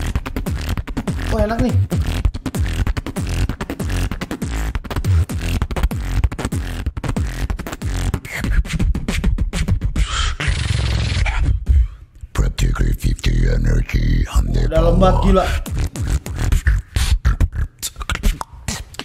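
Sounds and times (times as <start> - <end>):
heavy bass line: 0.0 - 4.1, 10.6 - 17.4
beatboxing into a microphone: 0.0 - 19.0.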